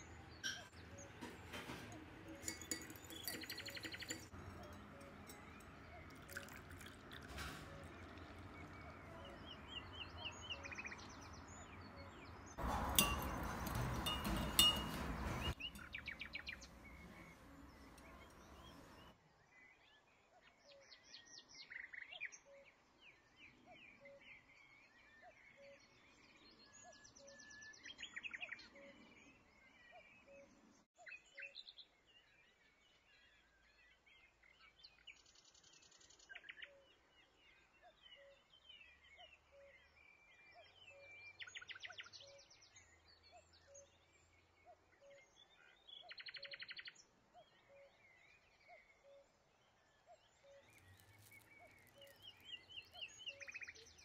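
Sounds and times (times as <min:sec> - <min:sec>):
small birds chirping: 0:00.0 - 0:19.2, 0:49.8 - 0:54.0
spoon clinking ceramic cup: 0:00.4 - 0:09.2, 0:12.6 - 0:19.1.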